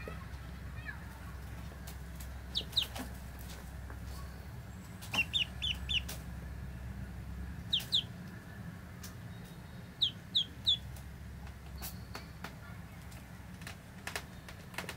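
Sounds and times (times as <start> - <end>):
ducklings peeping: 0.8 - 6.4, 7.6 - 13.1.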